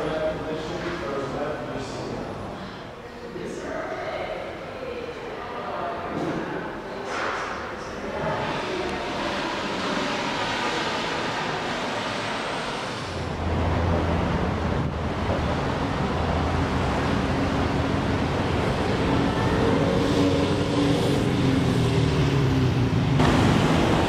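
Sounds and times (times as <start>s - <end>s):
street traffic noise: 0.0s - 3.3s, 6.1s - 24.0s
vehicle engine hum: 8.2s - 24.0s.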